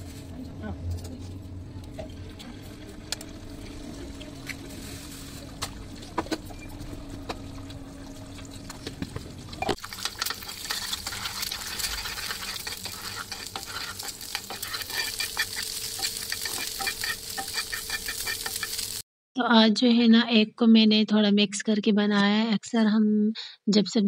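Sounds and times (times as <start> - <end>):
steady low hum: 0.0 - 18.6
eggs sizzling in hot oil: 9.6 - 19.0
spoon stirring in pan: 9.7 - 19.0.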